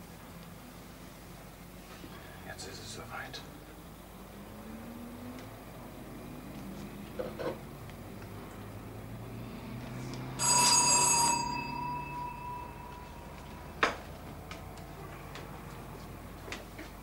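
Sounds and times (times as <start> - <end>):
electric doorbell ringing: 10.4 - 14.1.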